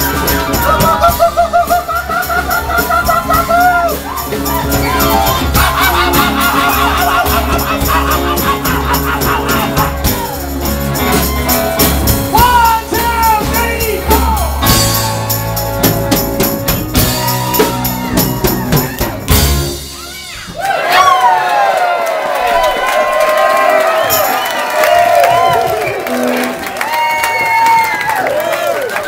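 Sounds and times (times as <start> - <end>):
electric guitar: 0.0 - 19.9
electric bass: 0.0 - 20.1
drum kit: 0.0 - 20.7
man singing: 12.3 - 14.6.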